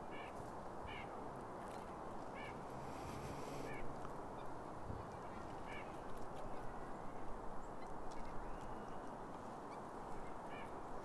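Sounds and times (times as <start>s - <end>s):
low rushing background noise: 0.0s - 5.4s.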